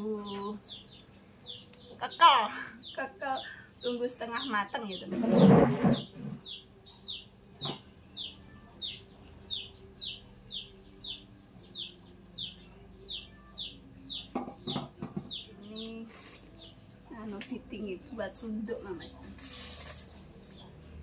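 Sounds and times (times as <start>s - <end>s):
bird peeping: 0.0s - 18.2s.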